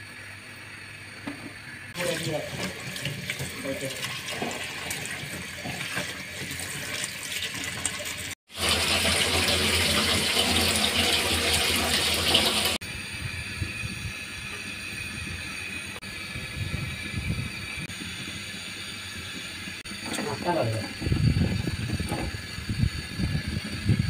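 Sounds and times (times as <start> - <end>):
tap water running into colander: 1.2 - 12.8, 14.5 - 24.0.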